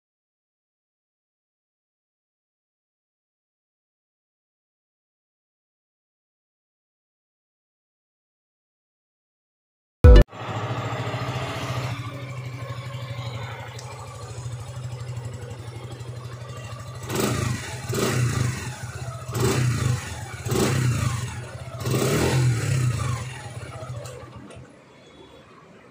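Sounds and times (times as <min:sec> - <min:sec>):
motorcycle engine idling and revving: 0:10.1 - 0:25.2.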